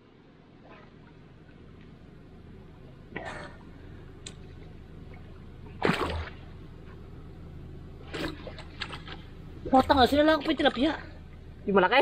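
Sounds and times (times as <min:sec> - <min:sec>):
low steady hum: 0:00.0 - 0:12.0
swish and splash in water: 0:05.7 - 0:06.5, 0:08.0 - 0:09.3.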